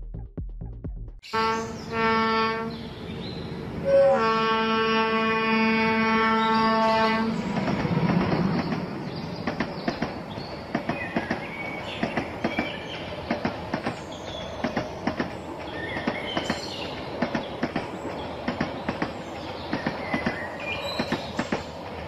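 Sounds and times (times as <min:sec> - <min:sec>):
model train horn: 0:01.3 - 0:02.7, 0:03.8 - 0:07.4.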